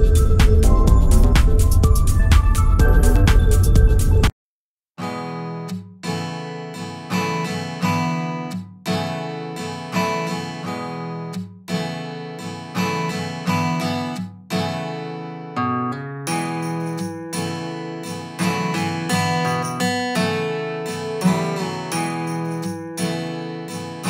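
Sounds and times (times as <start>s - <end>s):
acoustic guitar strumming chords: 5.0s - 24.0s.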